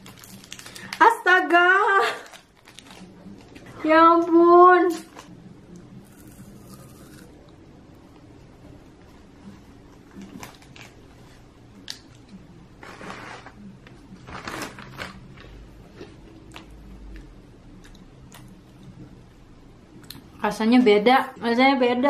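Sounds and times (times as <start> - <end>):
person chewing: 6.0 - 7.6, 15.4 - 19.0.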